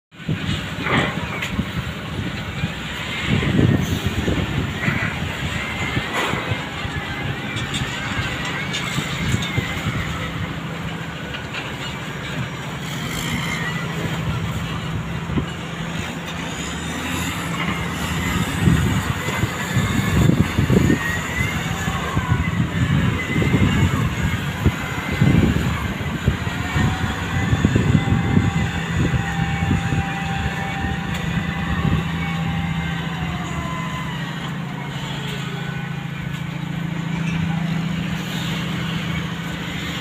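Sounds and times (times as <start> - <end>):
heavy engines droning: 0.1 - 40.0.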